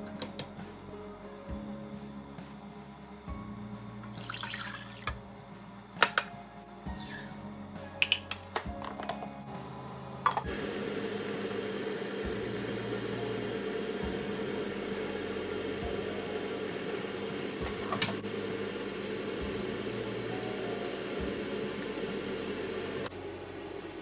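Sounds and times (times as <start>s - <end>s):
water boiling in a pot: 4.0s - 5.2s, 11.6s - 24.0s.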